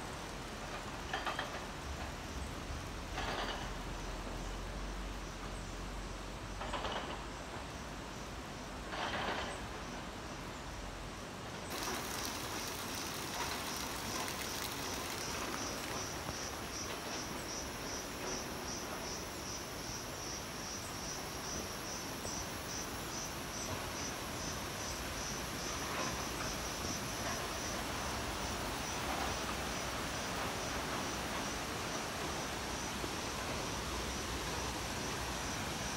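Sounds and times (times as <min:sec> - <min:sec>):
insect pulsing call: 0:11.7 - 0:35.9.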